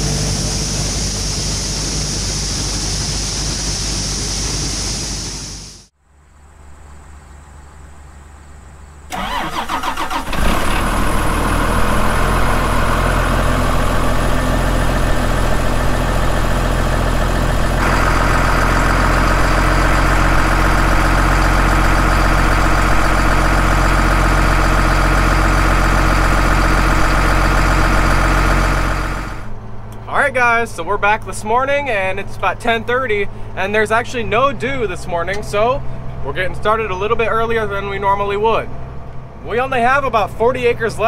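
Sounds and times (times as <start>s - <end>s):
diesel engine running: 0.0s - 5.9s, 9.0s - 41.0s
high whine: 0.0s - 7.1s, 10.7s - 41.0s
tractor starter cranking: 9.1s - 30.0s.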